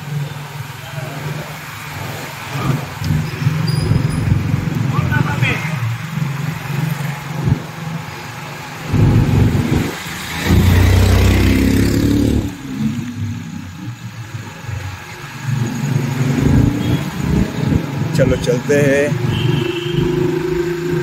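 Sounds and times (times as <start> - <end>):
motorcycle engine rumble: 0.0 - 21.0.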